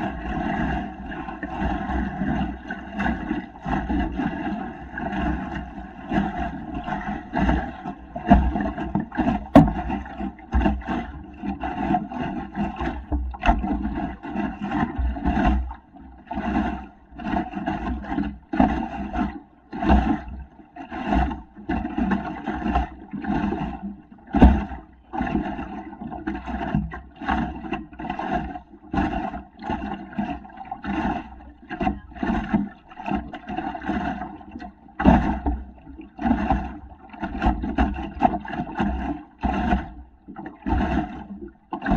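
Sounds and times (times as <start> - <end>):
wind rumbling on microphone: 0.0 - 11.6
water slapping against boat hull: 0.0 - 41.9.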